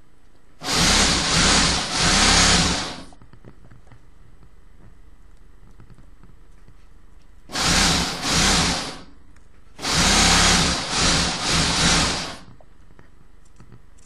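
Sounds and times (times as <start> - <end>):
vacuum pump motor hum: 0.6 - 3.2, 7.5 - 9.2, 9.8 - 12.6.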